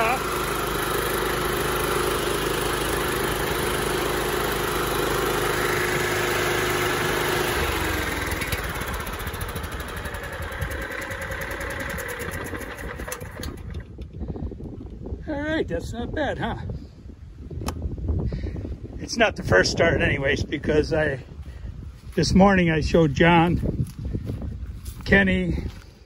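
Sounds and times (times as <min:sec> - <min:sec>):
engine winding down: 0:00.0 - 0:14.1
lawn tractor engine running: 0:00.0 - 0:14.2.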